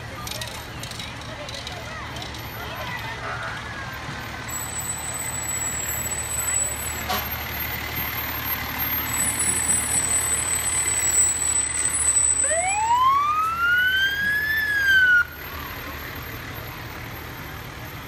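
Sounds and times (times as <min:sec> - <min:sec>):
fire engine passing: 0:00.0 - 0:18.0
siren winding up: 0:09.2 - 0:15.3.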